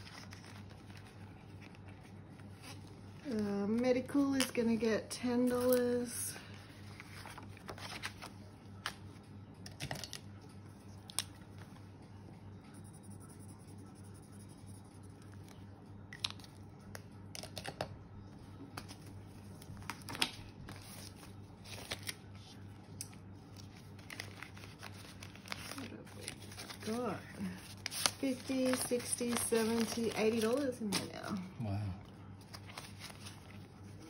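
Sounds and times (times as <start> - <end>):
faint low hum: 0.0 - 34.0
plastic sleeves crinkling: 18.8 - 31.4, 32.4 - 34.0.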